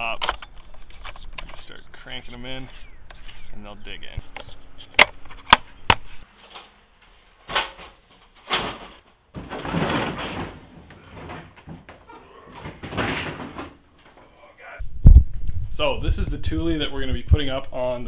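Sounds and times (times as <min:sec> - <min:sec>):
box scraping and bumping on shelf: 0:08.4 - 0:12.0, 0:12.6 - 0:13.8.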